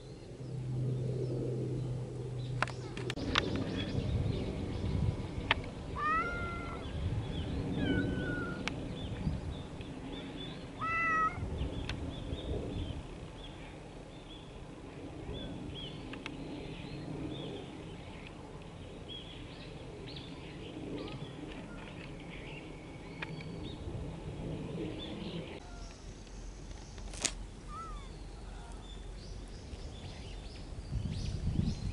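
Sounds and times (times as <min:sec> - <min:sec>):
cat meowing: 0:06.0 - 0:06.8, 0:07.8 - 0:08.7, 0:10.8 - 0:11.4, 0:27.7 - 0:28.1.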